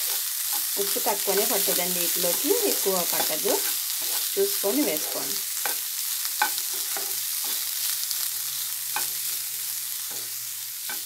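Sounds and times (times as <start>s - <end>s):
spatula scraping a pan: 0.0s - 7.9s, 8.9s - 11.0s.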